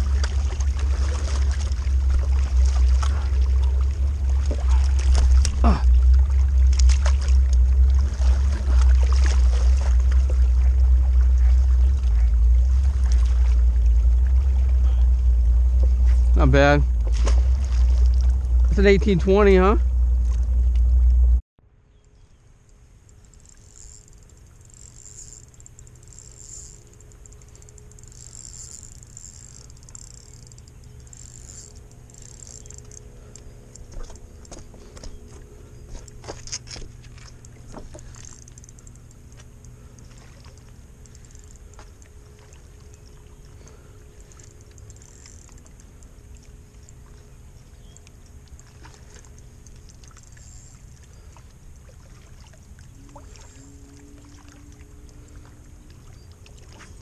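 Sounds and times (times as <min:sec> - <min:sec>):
low rumble with faint hum: 0:00.0 - 0:57.0
spinning reel clicking and rattling: 0:23.0 - 0:34.5, 0:37.4 - 0:39.3, 0:44.4 - 0:45.6.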